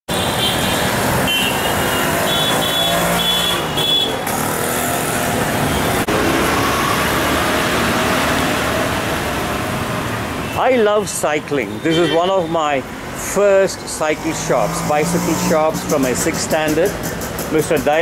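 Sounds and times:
passing motor vehicles: 0.1s - 18.0s.

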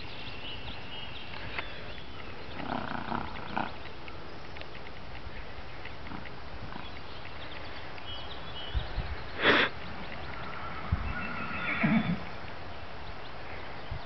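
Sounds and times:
horse snorting: 2.5s - 3.8s, 10.8s - 12.3s
horse whinnying: 10.6s - 12.2s.

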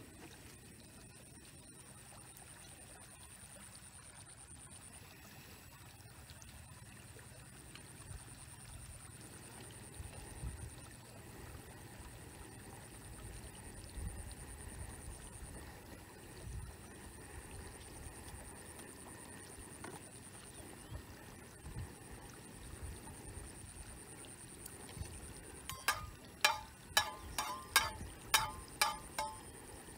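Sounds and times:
faint high-pitched trill: 25.7s - 29.9s.

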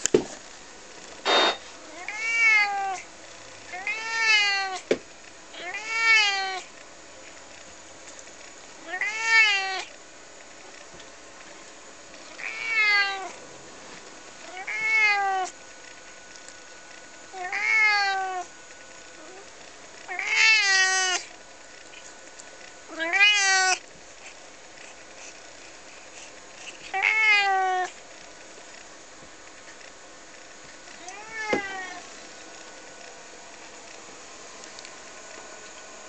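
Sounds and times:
cat meowing: 1.9s - 3.0s, 3.7s - 4.8s, 5.6s - 6.7s, 8.8s - 9.9s, 12.4s - 13.4s, 14.5s - 15.5s, 17.3s - 18.5s, 20.1s - 21.3s, 22.9s - 23.8s, 26.9s - 28.0s, 31.0s - 32.0s.

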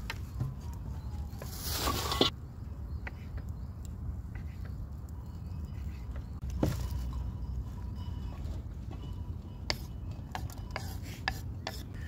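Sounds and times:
rustle: 1.2s - 2.4s.

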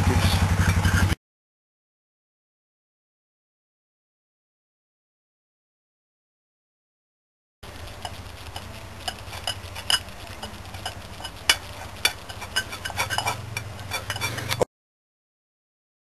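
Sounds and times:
metal spoon scraping a saucepan: 0.4s - 1.2s, 7.8s - 14.7s
low steady hum: 7.6s - 14.7s.

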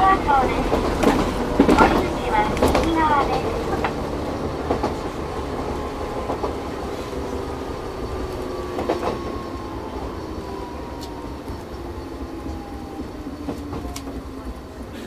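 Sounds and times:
wheel clacks on track: 0.0s - 9.6s
electric train rumble and whine: 0.0s - 15.0s.

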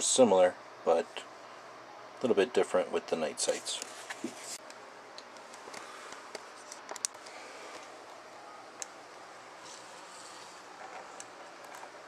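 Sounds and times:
room hiss: 0.0s - 12.0s.

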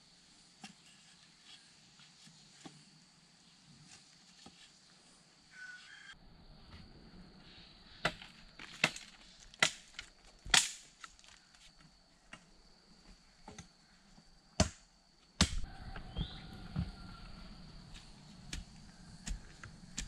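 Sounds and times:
loose soil scraping and rustling: 0.4s - 13.7s, 15.7s - 20.0s
digging tool chopping earth: 15.4s - 15.6s, 18.5s - 20.0s.

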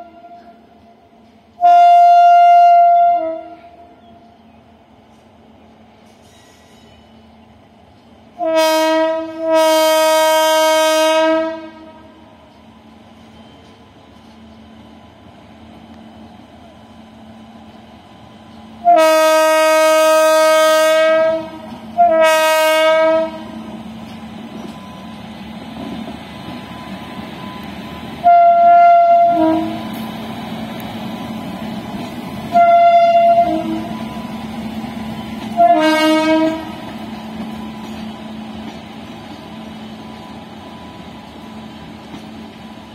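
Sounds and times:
locomotive horn blasts: 0.0s - 0.7s, 1.6s - 3.9s, 8.4s - 12.3s, 18.8s - 23.7s, 28.2s - 30.0s, 32.5s - 34.0s, 35.4s - 36.9s
train rolling noise: 0.0s - 42.9s.

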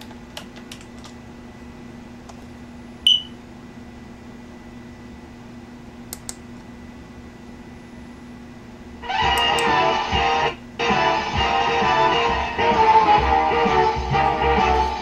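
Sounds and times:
steady electrical hum: 0.0s - 15.0s
loud high beep: 3.1s - 3.4s
loud music: 9.0s - 15.0s.

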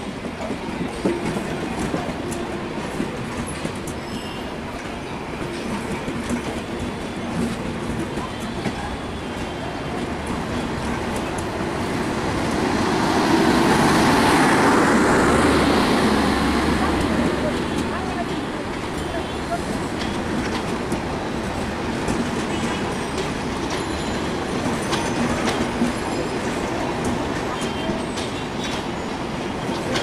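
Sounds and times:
train generator car: 0.0s - 30.0s
train wheels rumbling on rails: 0.0s - 30.0s
rail clicks: 0.1s - 30.0s.

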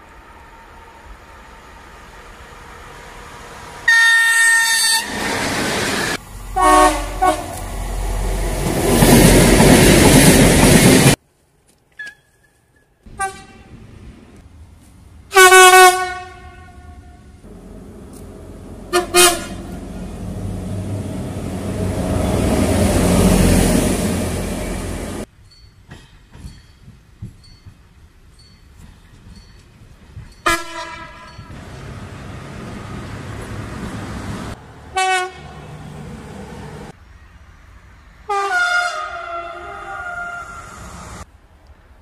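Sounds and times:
train rumble: 0.0s - 11.2s, 13.1s - 38.6s
locomotive horn: 3.9s - 5.2s, 6.6s - 7.6s, 13.1s - 13.8s, 15.3s - 21.0s, 30.4s - 31.4s, 34.9s - 35.6s, 38.3s - 40.9s.

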